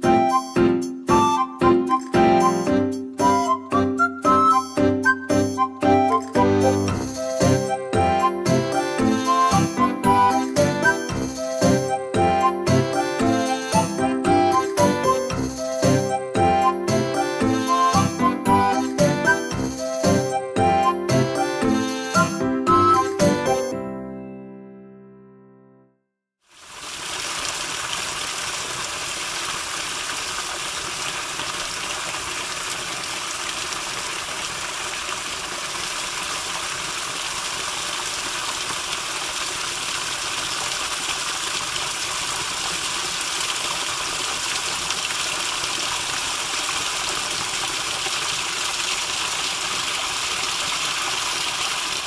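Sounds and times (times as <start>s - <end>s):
stream rushing over stones: 26.5s - 52.0s.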